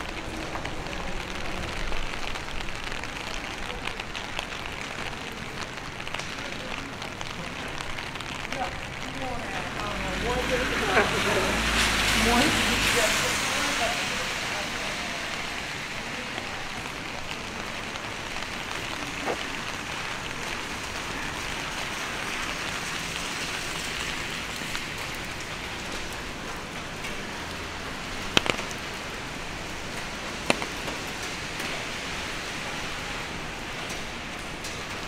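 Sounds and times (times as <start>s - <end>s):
steady rain: 0.0s - 35.0s
sharp clicks: 28.4s - 28.8s, 30.5s - 30.8s.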